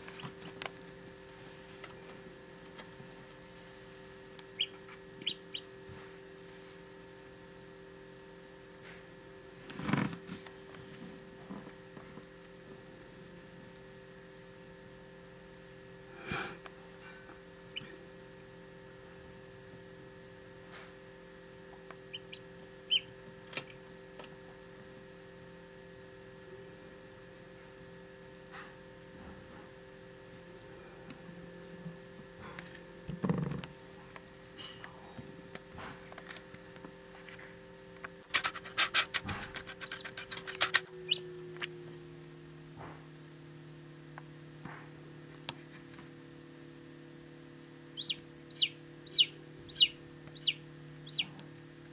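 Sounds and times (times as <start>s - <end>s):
steady electrical hum: 0.0s - 51.9s
chick peeping: 4.5s - 5.7s, 22.1s - 23.1s, 39.8s - 41.2s, 48.0s - 51.4s.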